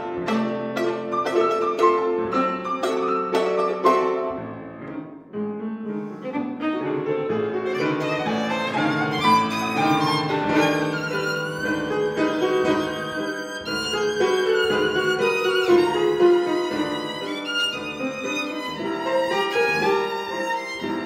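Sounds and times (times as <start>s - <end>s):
violin playing: 0.0s - 4.6s, 6.0s - 21.0s
piano accompaniment: 0.0s - 21.0s.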